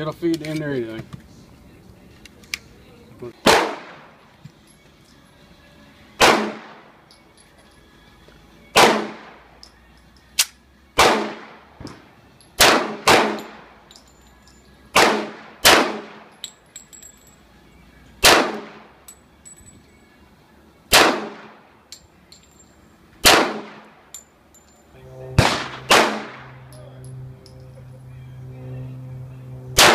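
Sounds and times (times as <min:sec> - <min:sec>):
pistol shots with echo: 0:03.4 - 0:04.2, 0:06.2 - 0:07.0, 0:08.7 - 0:09.4, 0:10.4 - 0:13.8, 0:14.9 - 0:16.4, 0:18.2 - 0:18.9, 0:20.9 - 0:21.6, 0:23.2 - 0:24.0, 0:25.4 - 0:26.8.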